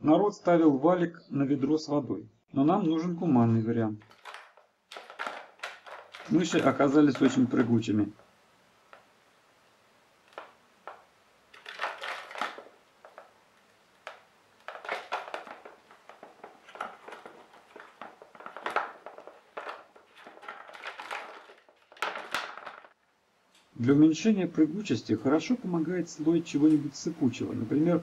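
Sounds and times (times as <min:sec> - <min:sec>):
mouse scratching inside plastic bottle: 0:04.0 - 0:07.8, 0:10.2 - 0:22.9.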